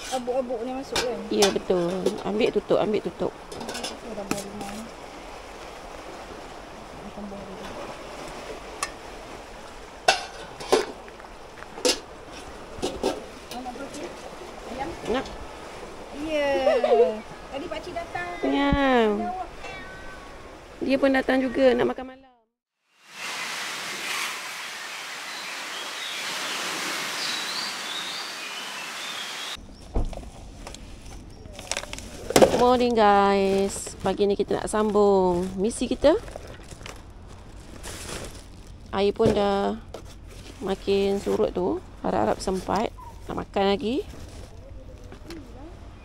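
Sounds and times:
sea waves washing on shore: 0.0 - 21.7, 23.0 - 29.6
steady outdoor hiss: 0.0 - 22.0, 22.8 - 46.0.

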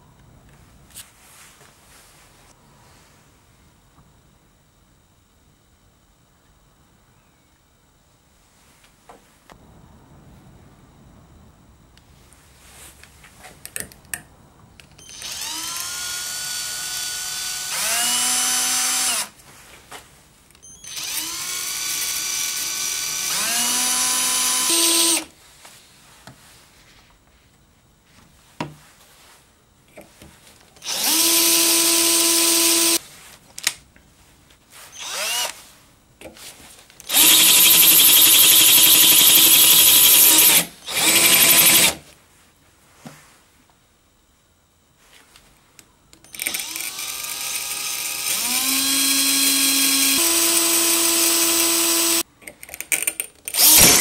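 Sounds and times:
cordless drill whining: 15.0 - 19.3, 20.7 - 25.3, 30.8 - 33.0, 34.9 - 35.6, 37.0 - 42.0, 46.3 - 52.2, 53.5 - 54.0.

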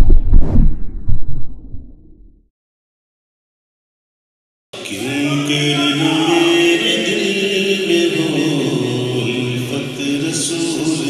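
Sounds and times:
man singing unaccompanied: 4.8 - 11.0.

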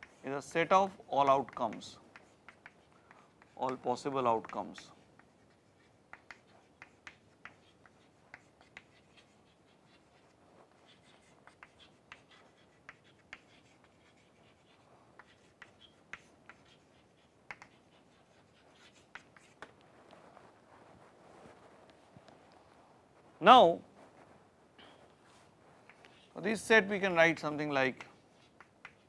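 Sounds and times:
chalk tapping and scratching: 0.0 - 22.5, 25.2 - 29.0.

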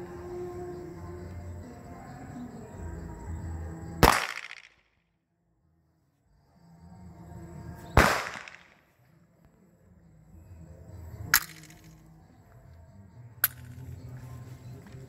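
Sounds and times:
pistol shot: 4.0 - 4.8, 8.0 - 8.8
sharp cracks: 4.0 - 4.9, 8.0 - 8.9, 11.3 - 12.0.

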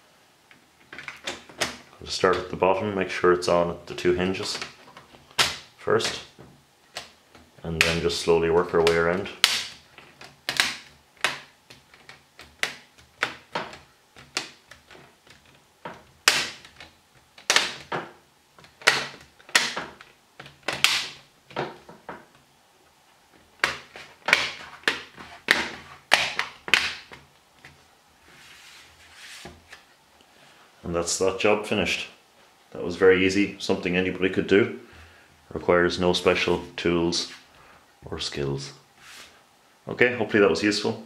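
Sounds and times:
plastic clips snapping: 8.8 - 15.6, 16.2 - 18.0, 18.6 - 21.7.

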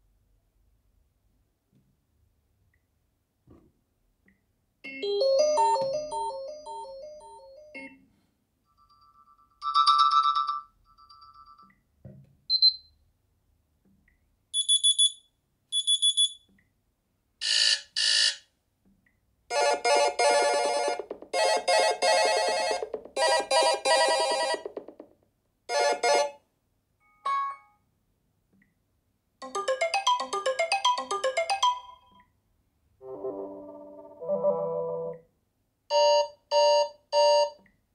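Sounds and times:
phone alarm tones: 35.9 - 37.6.

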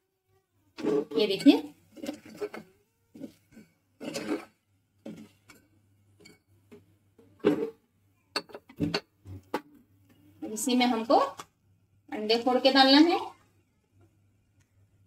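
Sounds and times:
spoon scraping metal pot: 0.8 - 6.5.

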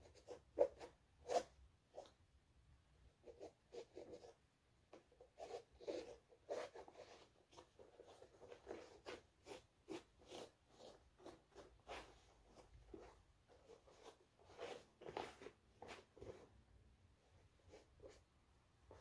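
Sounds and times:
towel rubbing a sneaker: 5.3 - 16.6.

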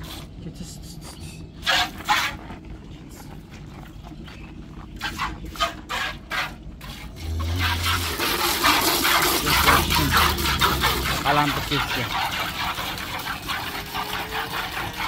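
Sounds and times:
milk squirting into a steel pail: 6.9 - 15.0.

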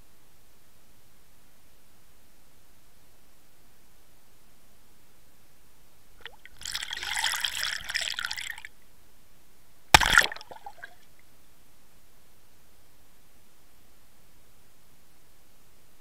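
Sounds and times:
water fizzing and crackling: 6.2 - 8.7, 10.0 - 11.0.

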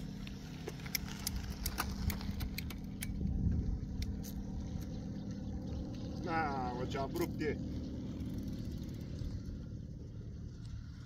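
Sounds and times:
bicycle metallic clicks and rattles: 0.0 - 6.1
steady low rumble: 0.0 - 11.0.

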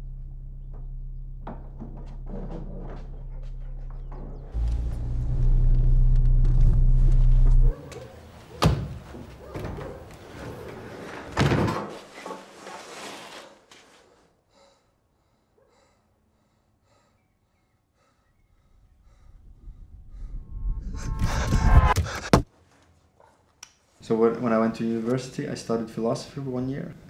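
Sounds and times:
loud low rumble: 0.0 - 2.4, 4.5 - 7.7, 19.0 - 22.4
garage door banging shut: 11.2 - 12.0
sharp thud: 21.1 - 22.5.

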